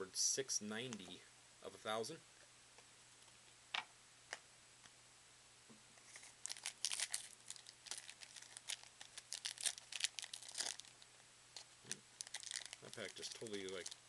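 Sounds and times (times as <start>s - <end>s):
foil wrapper crinkling: 6.0s - 11.0s, 11.6s - 14.0s.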